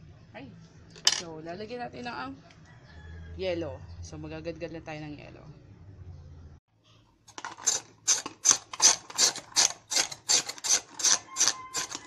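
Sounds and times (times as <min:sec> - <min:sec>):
ice being shaved by hand: 0:07.5 - 0:12.0.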